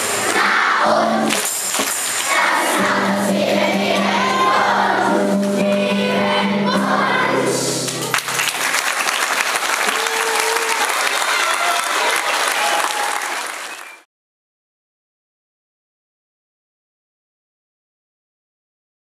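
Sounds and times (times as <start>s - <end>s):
children singing to music: 0.0s - 8.1s
clapping: 7.9s - 14.1s.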